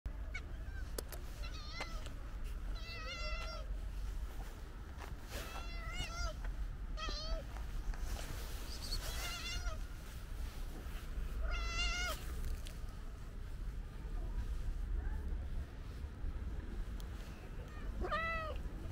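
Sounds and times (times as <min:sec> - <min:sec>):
cat meowing: 0:00.3 - 0:02.1, 0:02.8 - 0:03.7, 0:05.5 - 0:06.4, 0:07.0 - 0:07.5, 0:09.0 - 0:09.8, 0:11.4 - 0:12.2, 0:17.7 - 0:18.6.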